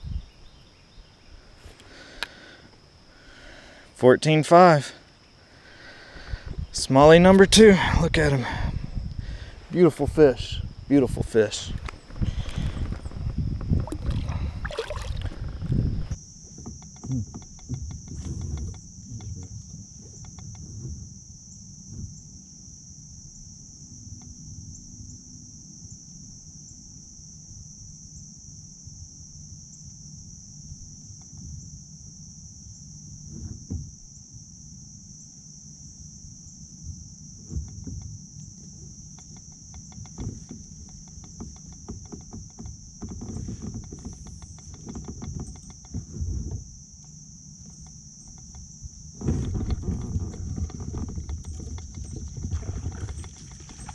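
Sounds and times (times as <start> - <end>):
high-pitched insect chorus: 0.0 - 53.9
handling noise: 49.2 - 53.9.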